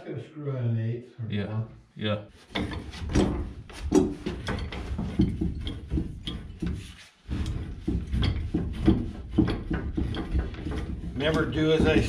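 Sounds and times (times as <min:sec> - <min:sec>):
pipe wrench clicking and creaking: 0:02.5 - 0:12.0.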